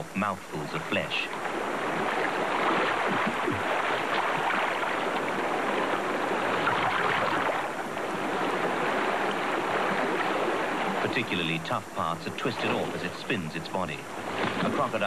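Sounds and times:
river water rushing: 0.0 - 15.0
splashing in water: 1.9 - 5.2, 14.3 - 15.0.

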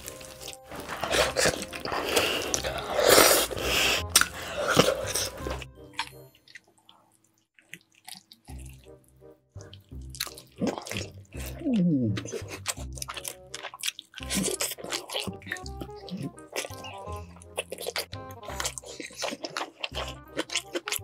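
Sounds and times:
wet chewing of chicken: 0.0 - 21.0.

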